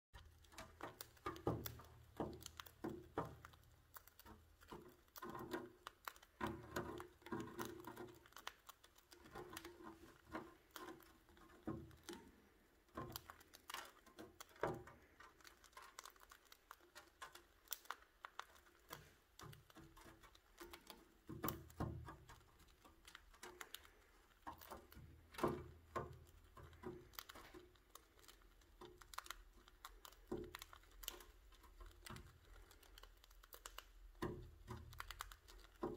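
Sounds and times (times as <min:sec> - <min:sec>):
birds cracking seeds with beaks: 0:00.2 - 0:35.9.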